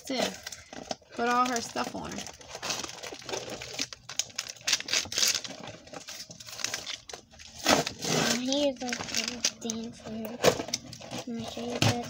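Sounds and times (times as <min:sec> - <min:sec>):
packaging crinkling: 0:00.0 - 0:11.7
plastic toy pieces clicking: 0:08.4 - 0:10.8.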